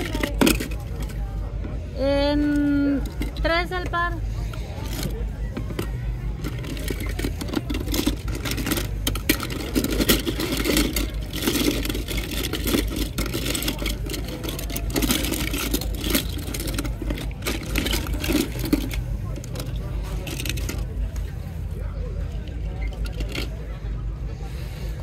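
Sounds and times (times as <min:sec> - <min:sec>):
toy cars clattering and clicking: 0:00.0 - 0:24.3.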